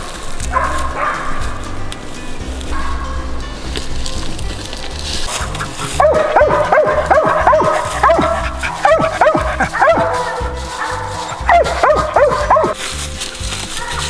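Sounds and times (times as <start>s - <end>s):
background music: 0.0s - 14.0s
dog barking rapidly: 0.5s - 1.6s, 2.7s - 3.2s, 5.3s - 12.8s, 13.6s - 14.0s.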